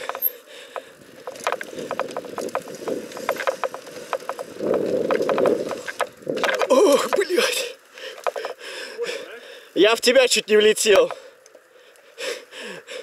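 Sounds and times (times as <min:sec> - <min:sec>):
bike rattling over bumps: 0:00.0 - 0:09.0
tyre rushing on dirt: 0:00.0 - 0:09.1
wind noise: 0:00.9 - 0:07.3.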